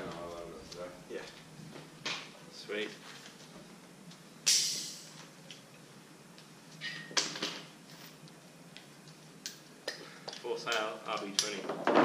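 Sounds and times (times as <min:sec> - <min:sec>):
burst of hiss: 0:04.5 - 0:05.2.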